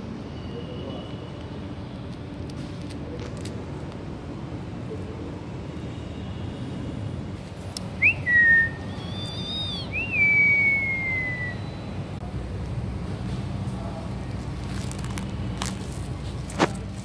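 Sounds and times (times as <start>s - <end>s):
whistling: 8.0s - 12.0s.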